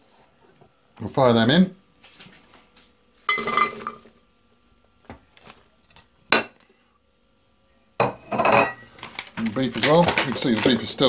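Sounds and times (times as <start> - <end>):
vegetables clattering into pot: 3.3 - 4.1, 8.4 - 11.0.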